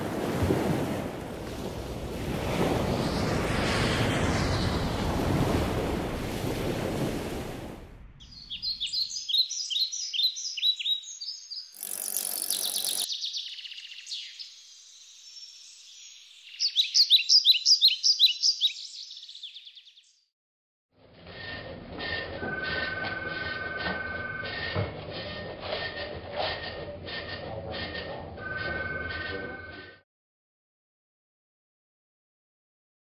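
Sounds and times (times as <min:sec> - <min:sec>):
sea surf washing: 0:00.0 - 0:08.0
noisy whoosh: 0:02.4 - 0:06.3
small birds chirping: 0:08.2 - 0:20.2.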